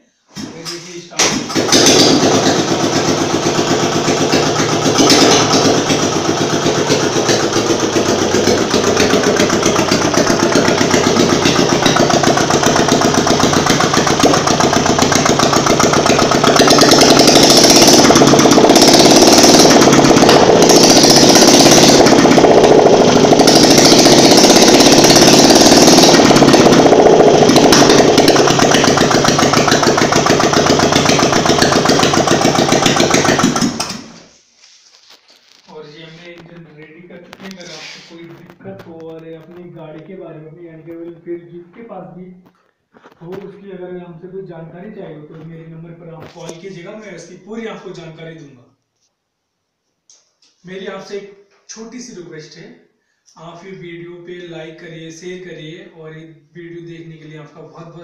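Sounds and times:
motorcycle engine running unsilenced: 0:01.4 - 0:34.3.

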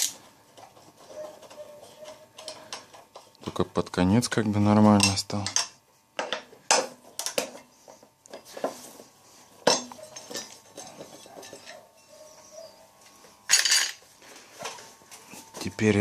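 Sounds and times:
metallic clinks and knocks: 0:09.6 - 0:11.8.

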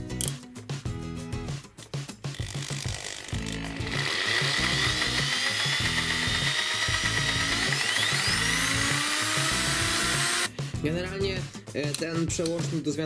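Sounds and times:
background music with steady beat: 0:00.0 - 0:13.0
hammer drill motor whine: 0:02.6 - 0:10.5.

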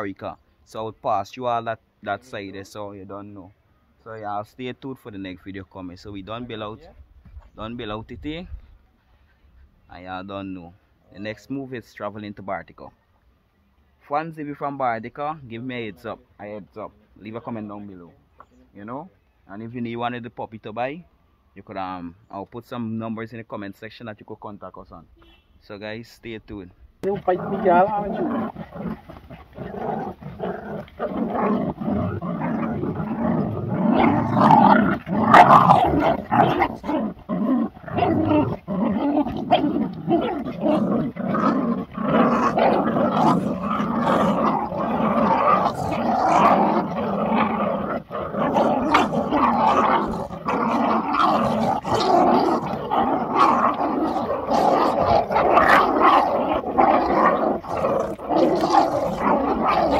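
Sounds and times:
puppies growling: 0:27.0 - 0:59.9.

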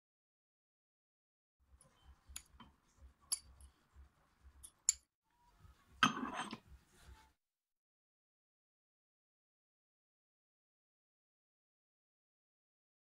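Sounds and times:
metal bowl clattering: 0:06.0 - 0:06.6.

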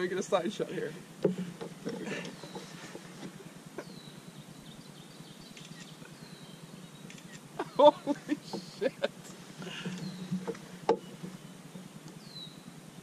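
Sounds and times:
low steady hum: 0:00.0 - 0:13.0
light clicks and knocks: 0:01.2 - 0:03.4, 0:09.7 - 0:11.4
faint high bird calls: 0:01.9 - 0:13.0.

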